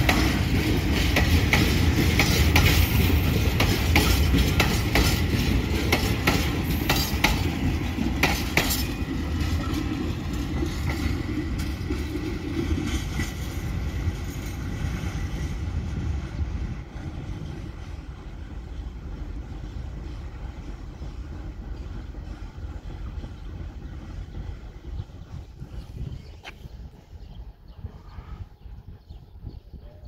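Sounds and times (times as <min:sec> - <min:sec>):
wheels clacking over rails: 0:00.0 - 0:14.9
train rumble: 0:00.0 - 0:30.0.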